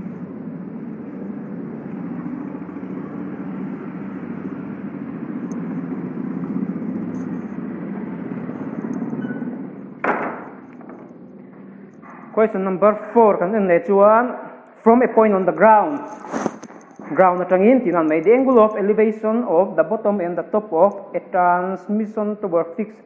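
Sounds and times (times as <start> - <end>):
thump: 10.0 - 11.0.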